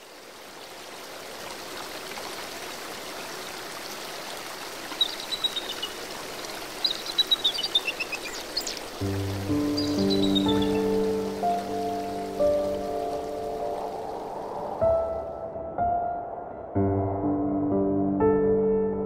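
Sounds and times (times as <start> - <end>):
stream rushing water: 0.0 - 15.6
bird singing short high notes: 9.8 - 10.9.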